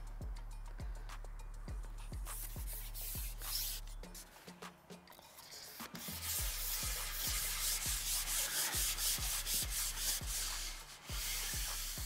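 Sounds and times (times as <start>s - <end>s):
kick drum beat: 0.0s - 3.4s, 6.4s - 8.2s, 8.8s - 12.0s
rhythmic shaker hiss: 5.4s - 12.0s.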